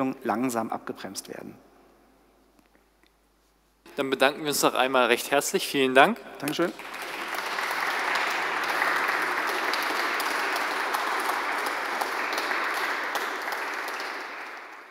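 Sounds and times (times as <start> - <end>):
audience applause: 6.5 - 14.9.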